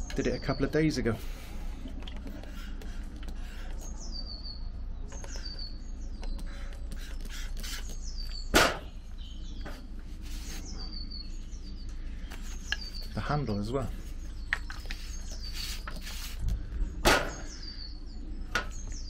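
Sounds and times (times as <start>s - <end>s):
bird chirping: 0.0s - 19.0s
spray bottle hissing: 6.9s - 8.2s.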